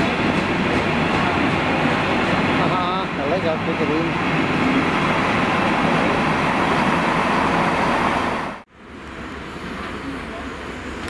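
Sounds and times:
freight train rolling past: 0.0 - 11.0.

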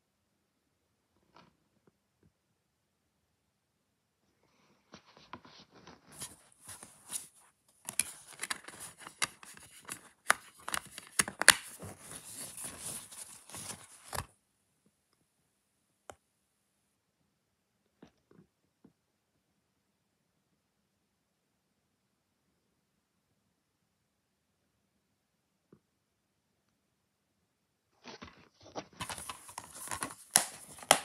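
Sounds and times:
plastic case clicking and scraping: 7.9 - 14.3, 28.6 - 31.0.

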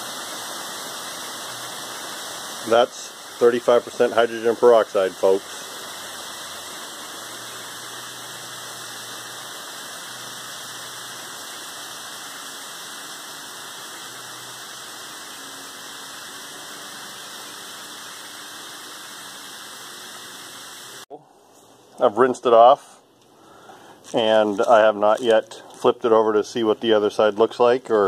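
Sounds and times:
liquid boiling and fizzing: 0.0 - 21.1.

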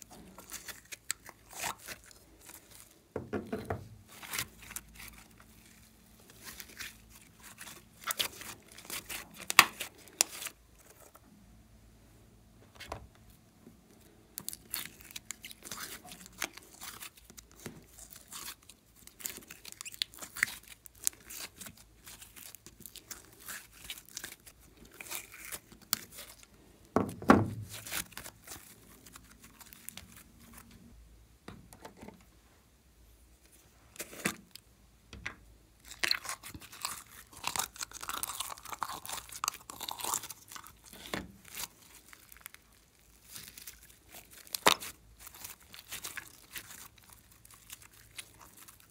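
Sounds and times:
slime crackling and popping: 0.0 - 2.9, 4.1 - 10.6, 14.4 - 26.5, 27.6 - 30.6, 35.8 - 48.9.

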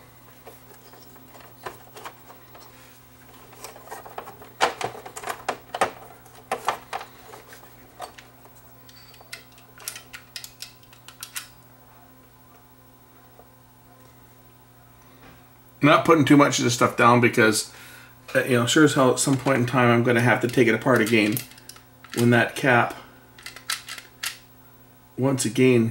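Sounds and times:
faint low hum: 0.0 - 25.9.

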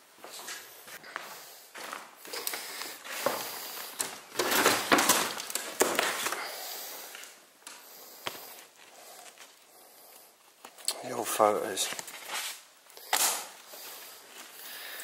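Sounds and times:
crunching footsteps: 0.2 - 9.8.

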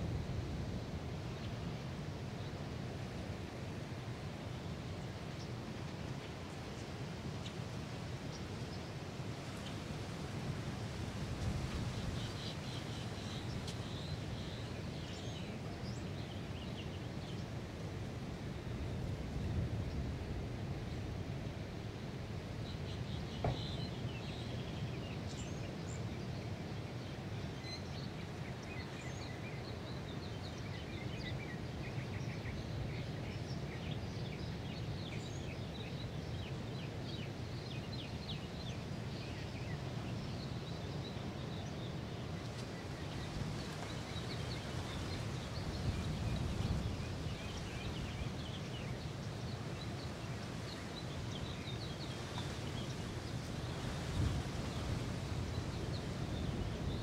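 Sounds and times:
birds chirping: 22.6 - 25.6
low rush of surf: 38.8 - 57.0.

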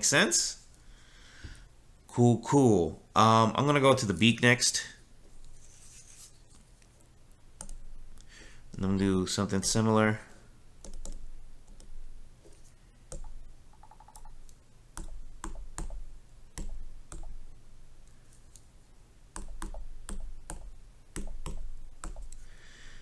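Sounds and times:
stylus tapping on glass touchscreen: 15.0 - 16.0, 19.4 - 22.3.

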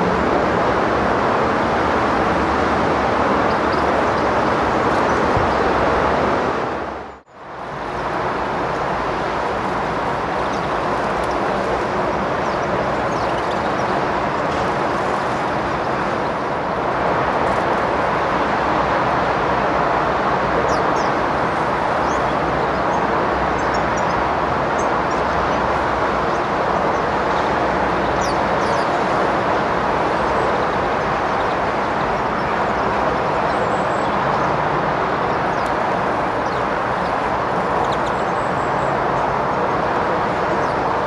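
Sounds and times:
steady rushing noise: 0.0 - 41.0
small birds chirping: 3.3 - 5.7, 7.1 - 16.5, 20.6 - 29.4, 30.0 - 41.0.

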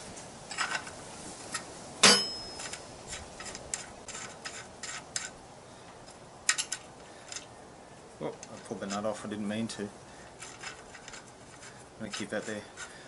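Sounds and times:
spanner clinking on axle nut: 2.0 - 2.9.

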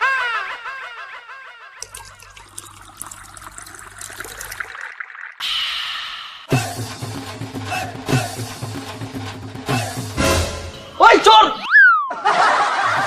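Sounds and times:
man urinating against a wall: 1.8 - 5.4.

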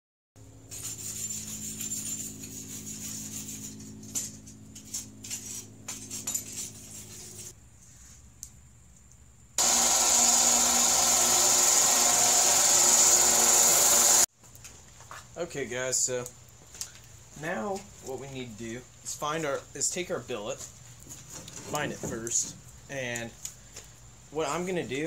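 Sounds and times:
bench grinder grinding steel: 9.6 - 14.3.

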